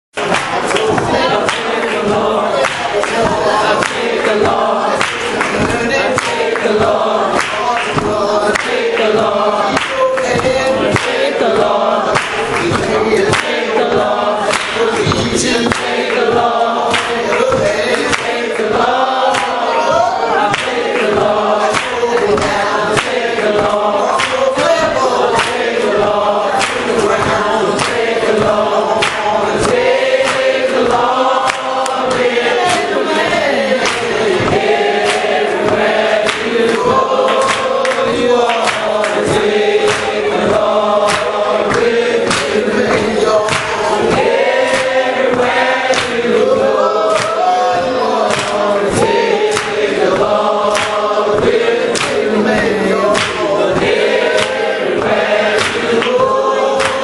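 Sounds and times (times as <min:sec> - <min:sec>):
congregation singing a hymn: 0:00.2 - 0:57.0.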